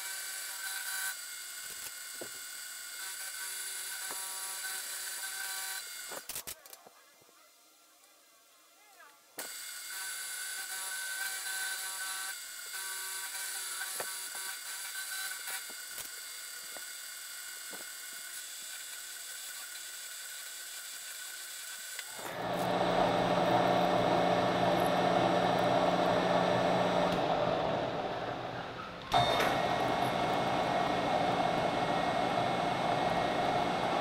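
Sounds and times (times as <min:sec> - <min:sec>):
drill boring into metal: 0:00.0 - 0:06.3, 0:09.4 - 0:27.8
milling machine whine: 0:22.0 - 0:34.0.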